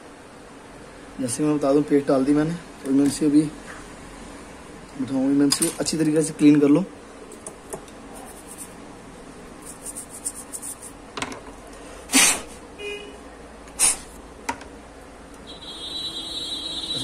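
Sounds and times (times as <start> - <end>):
toothbrush scrubbing a chip: 8.1 - 8.8, 9.6 - 11.0.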